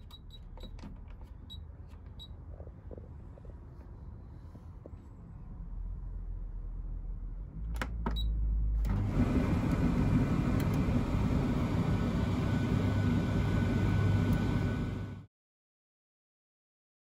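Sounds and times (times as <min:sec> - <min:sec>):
tumble dryer motor humming: 0:08.8 - 0:15.3
tumble dryer clicks: 0:10.5 - 0:10.9.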